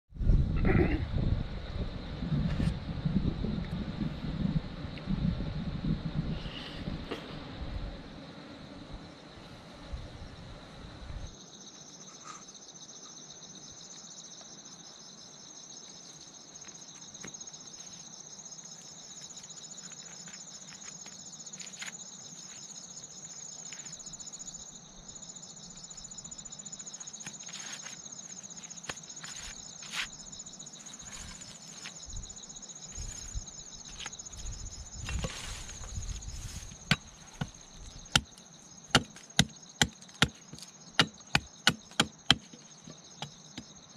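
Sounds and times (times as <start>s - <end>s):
insects chirring: 0.2s - 43.9s
machete chopping wood: 38.9s - 42.6s.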